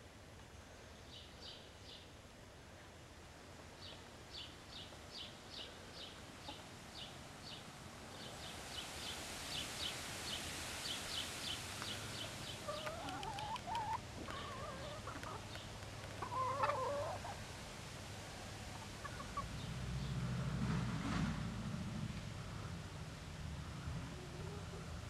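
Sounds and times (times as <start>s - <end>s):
hens clucking: 12.6s - 17.4s, 18.7s - 19.5s.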